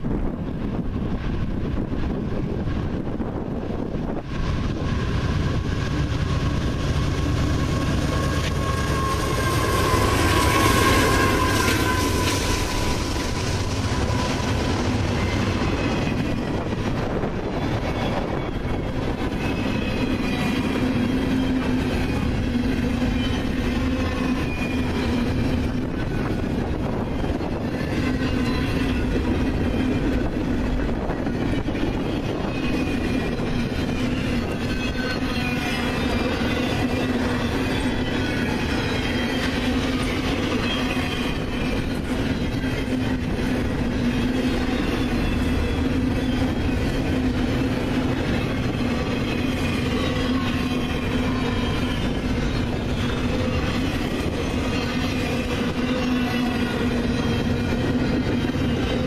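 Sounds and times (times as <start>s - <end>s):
diesel locomotive whine: 0.0s - 59.0s.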